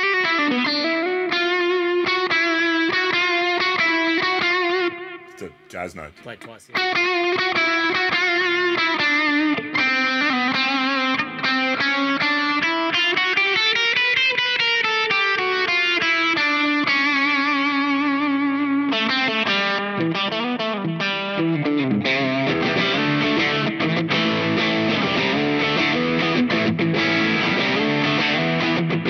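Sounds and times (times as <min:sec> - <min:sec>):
electric guitar with overdrive: 0:00.0 - 0:05.3, 0:06.7 - 0:29.0.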